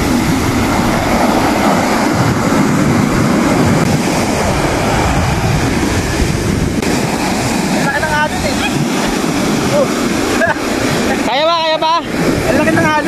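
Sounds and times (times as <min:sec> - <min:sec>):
ocean surf breaking: 0:00.0 - 0:13.0
wind buffeting the microphone: 0:00.0 - 0:13.0.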